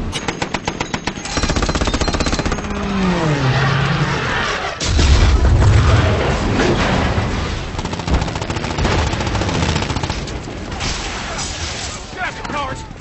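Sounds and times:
deep explosion: 0:04.8 - 0:08.2
machine-gun fire: 0:07.7 - 0:11.1.

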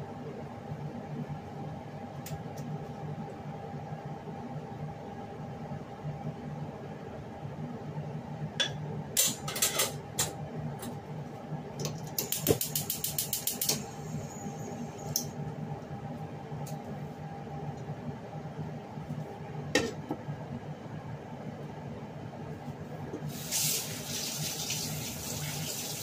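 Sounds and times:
gas stove igniter clicking: 0:11.8 - 0:13.8.

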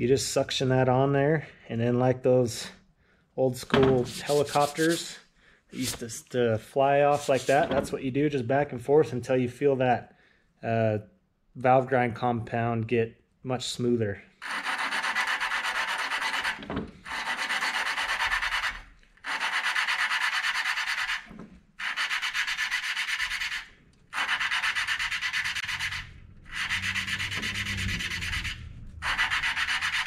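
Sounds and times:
valve grinding compound rasping: 0:14.4 - 0:30.0.

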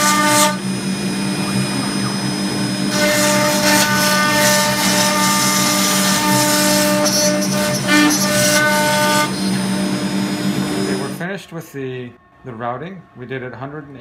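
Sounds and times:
hiss of cutting: 0:00.0 - 0:11.2
router spindle whine: 0:00.0 - 0:11.2.

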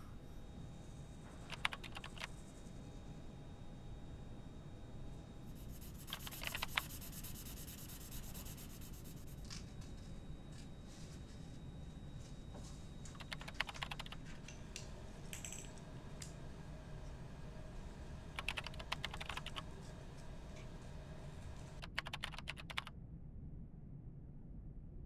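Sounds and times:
steady low hum: 0:00.0 - 0:25.0
rapid clicking: 0:01.5 - 0:02.3, 0:05.6 - 0:09.2, 0:13.1 - 0:14.2, 0:18.4 - 0:19.7, 0:21.8 - 0:22.9.

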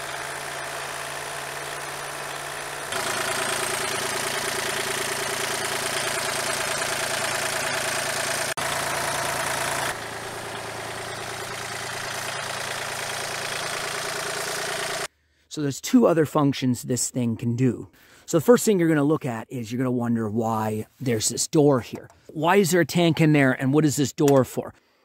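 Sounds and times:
steady machine hum: 0:00.0 - 0:15.1.

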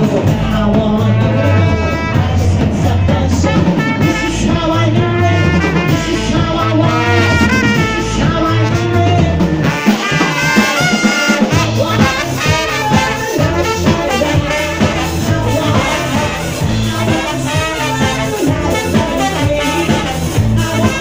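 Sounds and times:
bouncing bass: 0:00.0 - 0:21.0
drums: 0:00.0 - 0:21.0
woman singing: 0:00.0 - 0:21.0
trumpet: 0:01.0 - 0:21.0.

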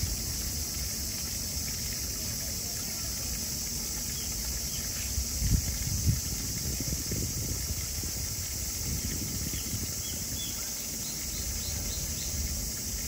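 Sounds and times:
high-pitched hiss: 0:00.0 - 0:13.0
wind rumble on microphone: 0:05.2 - 0:10.7.

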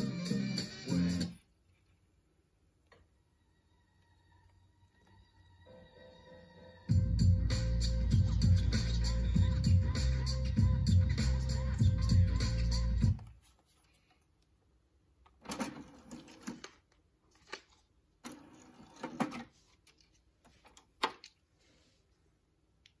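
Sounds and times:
music playing: 0:00.0 - 0:01.4, 0:03.8 - 0:13.2.

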